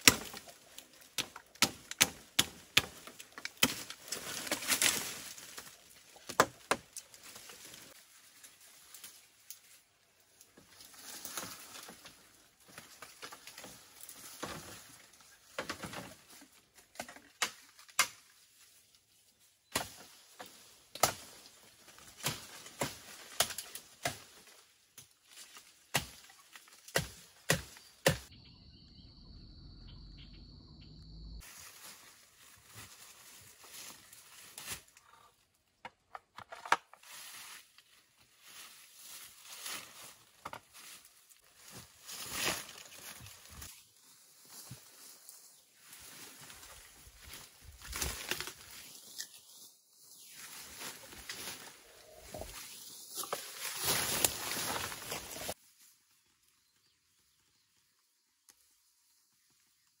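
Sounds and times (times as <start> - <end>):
bamboo snapping and cracking: 0.0 - 9.8, 10.5 - 18.4, 19.7 - 28.3, 47.2 - 49.4, 51.0 - 55.6
leaves and brush rustling: 0.0 - 28.3, 31.4 - 35.7, 36.7 - 60.0
low rumble: 28.4 - 31.4.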